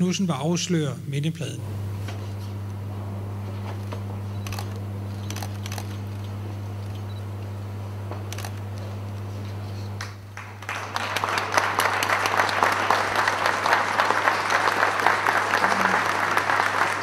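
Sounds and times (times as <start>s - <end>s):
steady low hum: 0.0s - 14.3s
audience applauding: 10.0s - 17.0s.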